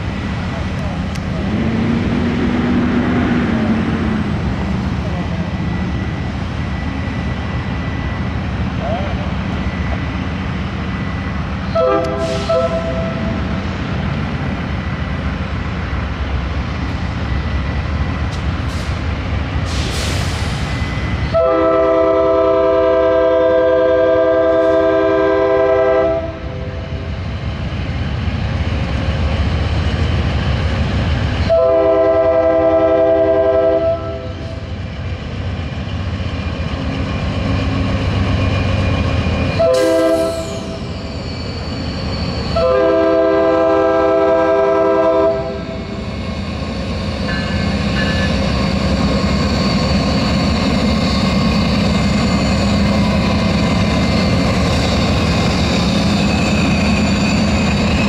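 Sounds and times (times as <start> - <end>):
locomotive horn blasts: 11.7 - 13.3, 21.3 - 26.4, 31.5 - 34.3, 39.6 - 40.5, 42.6 - 45.7.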